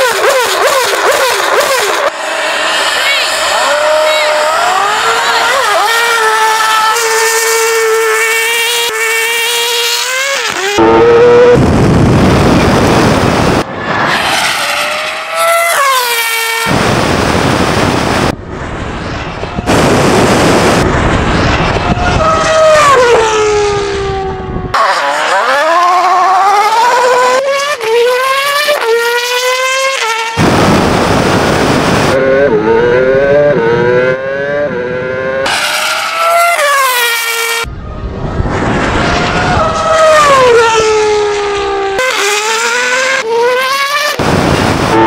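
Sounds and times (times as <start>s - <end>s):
race car engine screaming: 0.0s - 18.3s, 19.4s - 45.0s
loud rushing noise: 2.0s - 5.3s, 10.9s - 23.6s, 30.4s - 33.0s, 36.8s - 41.0s, 44.1s - 45.0s.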